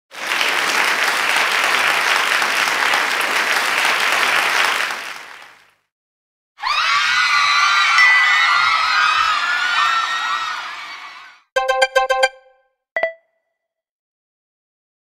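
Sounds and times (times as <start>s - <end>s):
crowd applause: 0.1s - 5.8s.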